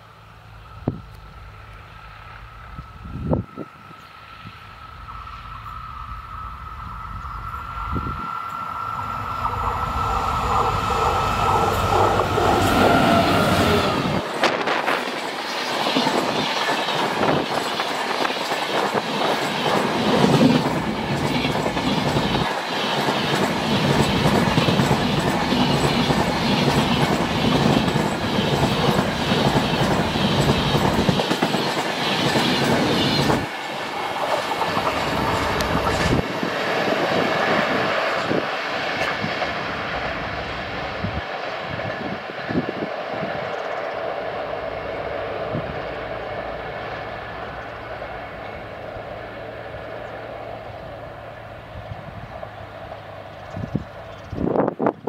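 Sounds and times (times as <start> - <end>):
high whine: 0.0 - 16.5
diesel locomotive engine running hard: 0.0 - 17.4, 19.0 - 55.0
train wheels clickety-clack: 9.5 - 40.2.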